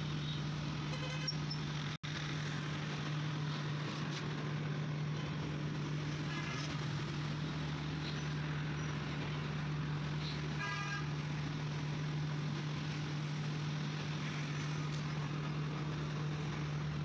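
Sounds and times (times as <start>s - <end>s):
low engine hum: 0.0s - 17.0s
road noise: 0.0s - 17.0s
vehicle horn toot: 10.6s - 11.1s.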